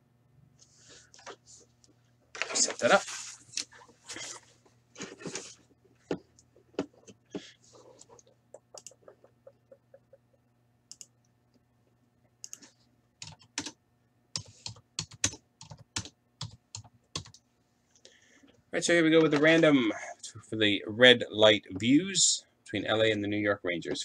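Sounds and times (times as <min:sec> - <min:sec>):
typing on a keyboard: 0:13.2 - 0:13.8, 0:14.4 - 0:17.4.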